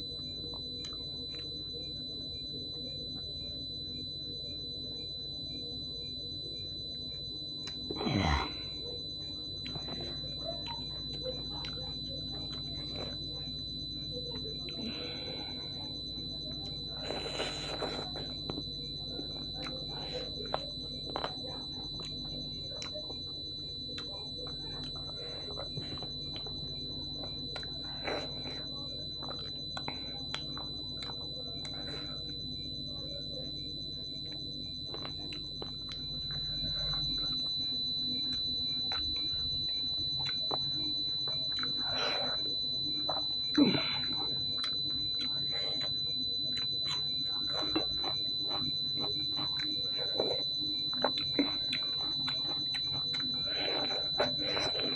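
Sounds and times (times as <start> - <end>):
person chewing and lip smacking: 7.6 - 8.2, 19.3 - 32.2, 34.2 - 54.9
high-pitched whine: 7.9 - 8.9.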